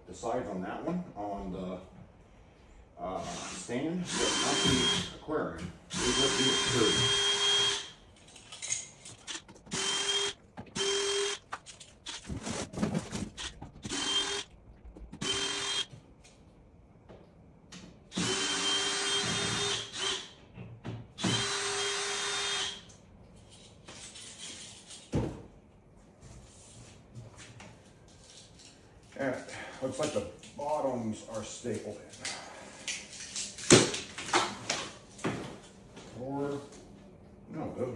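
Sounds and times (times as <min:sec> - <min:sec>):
cordless drill spinning: 0:04.1 - 0:05.1, 0:05.9 - 0:07.9, 0:09.2 - 0:11.4, 0:12.0 - 0:14.5, 0:15.1 - 0:15.9, 0:18.1 - 0:20.3, 0:21.2 - 0:22.8.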